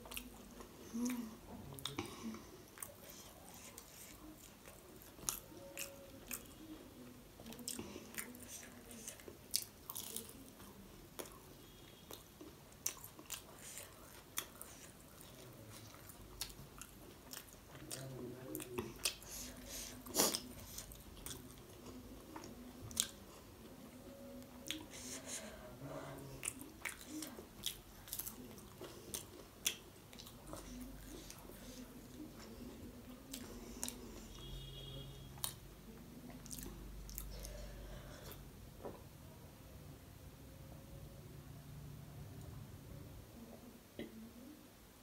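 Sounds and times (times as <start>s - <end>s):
crunchy chewing: 7.4s - 23.2s, 26.4s - 34.8s.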